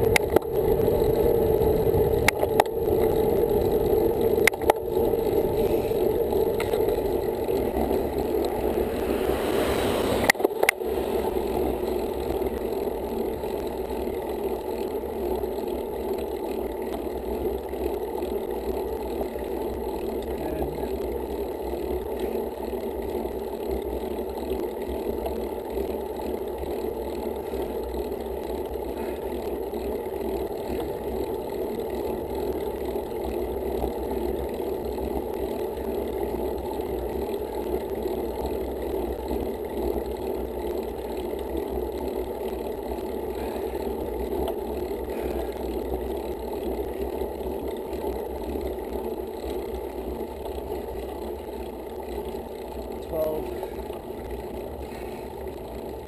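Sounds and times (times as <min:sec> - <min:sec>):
wind rumble: 0:00.0 - 0:13.6
bike tyres on asphalt: 0:00.0 - 0:56.0.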